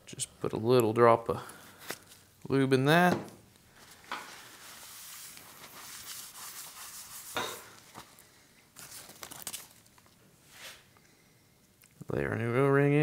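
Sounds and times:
gloved hands rustling paper towel: 0:03.7 - 0:10.9.

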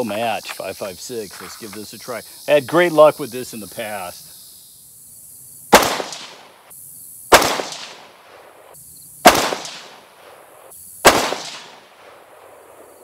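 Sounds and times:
rifle shots with echo: 0:05.7 - 0:06.5, 0:07.3 - 0:08.5, 0:09.2 - 0:12.8.

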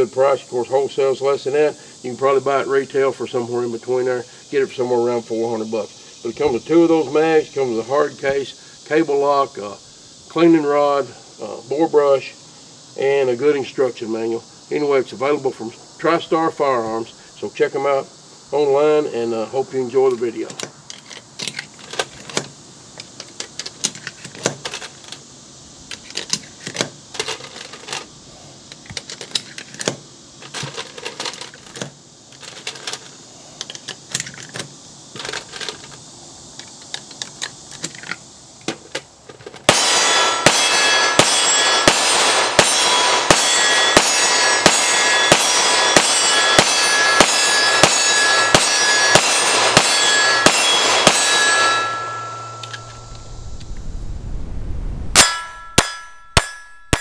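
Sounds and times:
pistol firing rapidly: 0:39.7 - 0:51.4
ringing between shots: 0:39.7 - 0:53.6, 0:55.1 - 0:57.0.

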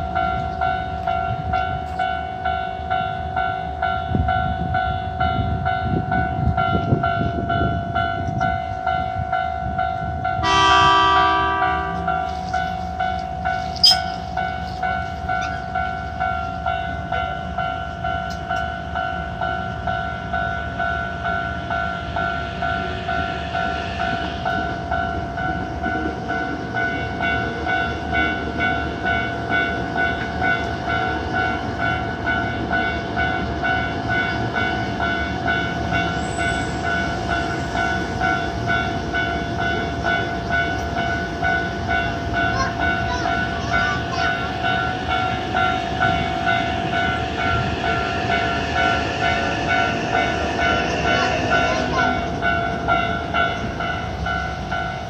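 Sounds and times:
train rumbling past: 0:00.0 - 0:55.0
level crossing bell ringing: 0:10.4 - 0:18.2.

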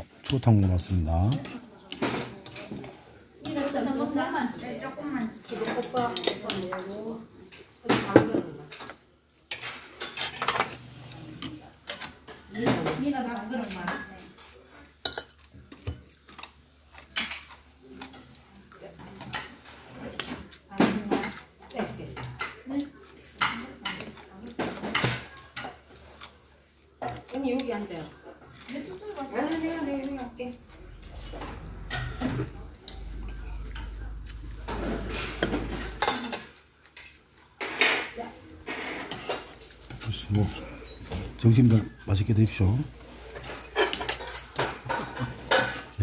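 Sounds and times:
tableware clinking: 0:07.5 - 0:10.8, 0:27.0 - 0:46.0.

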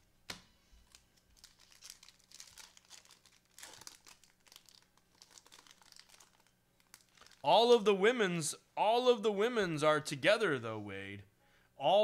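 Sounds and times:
foil wrapper crinkling: 0:00.8 - 0:07.5.

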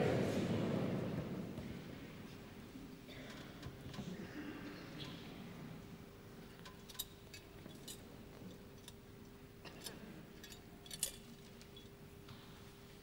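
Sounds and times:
faint electrical hum: 0:00.0 - 0:13.0
metallic chain clinks: 0:09.8 - 0:11.9.

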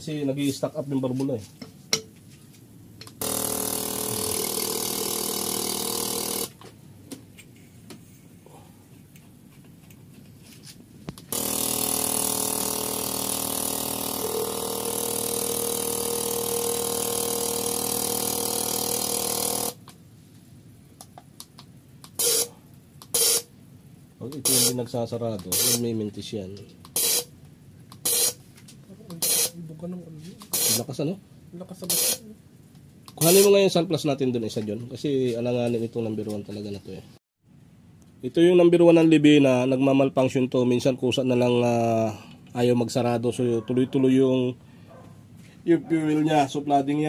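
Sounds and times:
fuel injector buzzing and hissing: 0:03.0 - 0:06.6, 0:11.1 - 0:20.0, 0:21.4 - 0:23.5, 0:24.4 - 0:24.8, 0:25.5 - 0:25.8, 0:26.8 - 0:28.4, 0:29.1 - 0:29.6, 0:30.4 - 0:30.9, 0:31.8 - 0:32.3, 0:33.1 - 0:33.6.

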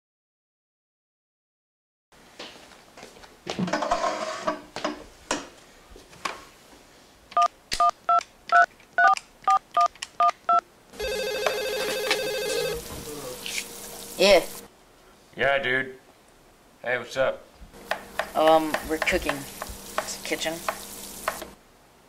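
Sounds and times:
two-tone keypad beeps: 0:07.4 - 0:12.8
electronic phone ring: 0:10.5 - 0:12.8.

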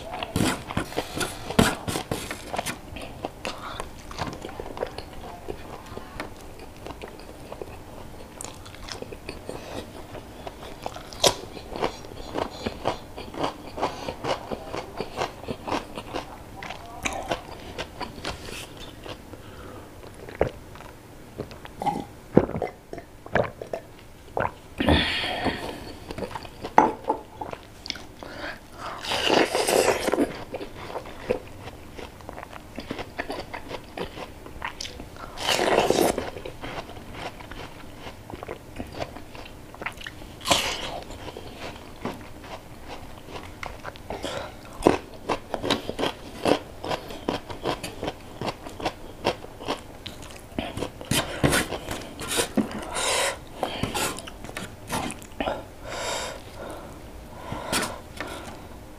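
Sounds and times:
chewing and crunching food: 0:00.0 - 0:24.7, 0:25.4 - 0:55.7
loud mouth sounds: 0:21.8 - 0:26.0.

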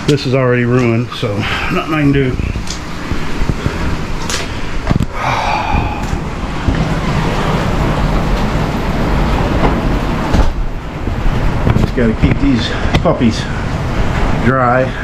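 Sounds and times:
heavy rain pouring: 0:00.0 - 0:15.0.

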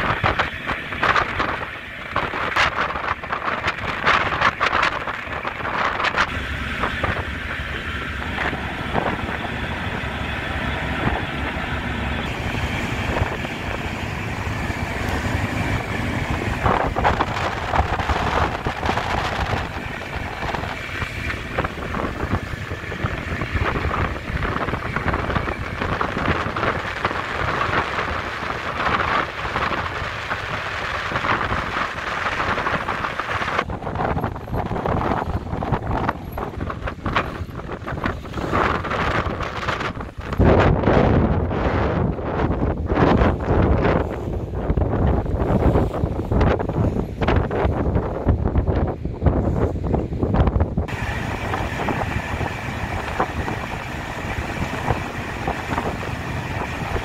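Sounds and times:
low engine rumble: 0:00.0 - 0:57.0
wind buffeting microphone: 0:00.0 - 0:57.0.

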